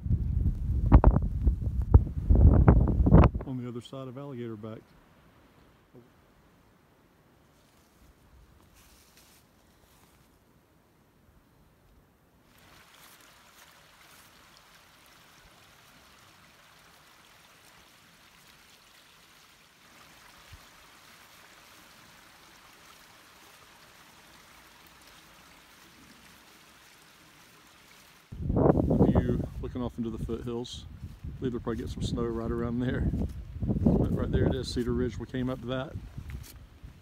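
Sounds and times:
mountain stream running: 12.4 - 34.1.

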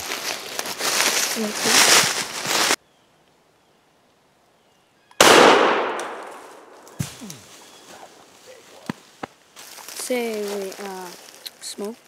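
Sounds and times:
gunshot echoing: 5.2 - 7.1.

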